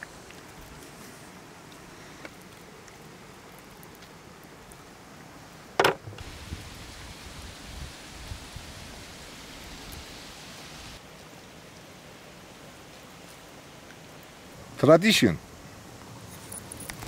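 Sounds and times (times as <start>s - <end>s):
steady outdoor hiss: 0.0s - 17.0s.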